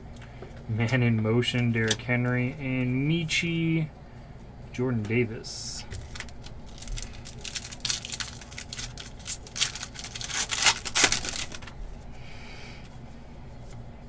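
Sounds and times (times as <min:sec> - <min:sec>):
foil wrapper tearing and crinkling: 0:06.0 - 0:11.8.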